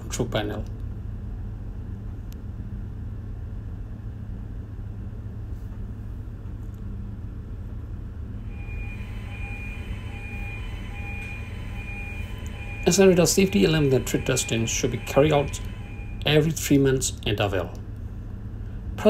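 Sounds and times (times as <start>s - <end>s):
engine room machinery hum: 0.0s - 19.0s
alarm buzzer beeping: 8.4s - 17.0s.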